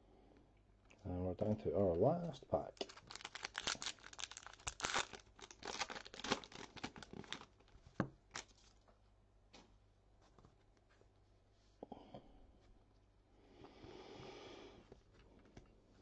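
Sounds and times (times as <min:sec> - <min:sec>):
plastic wrapper tearing and crinkling: 0:02.7 - 0:08.8.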